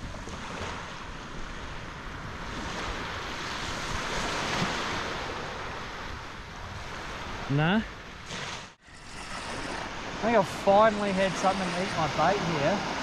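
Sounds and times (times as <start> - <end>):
wind noise on microphone: 0.0 - 7.5
surf washing up beach: 0.0 - 13.0.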